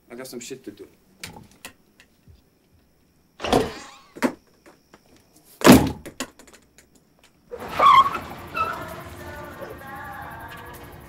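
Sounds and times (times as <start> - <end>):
door slamming shut: 3.4 - 4.3, 5.6 - 6.1.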